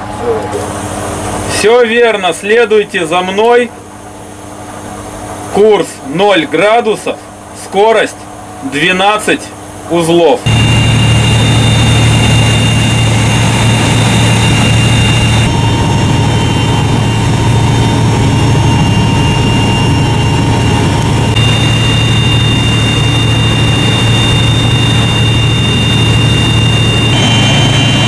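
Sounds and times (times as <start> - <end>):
ship engines humming: 9.6 - 28.0.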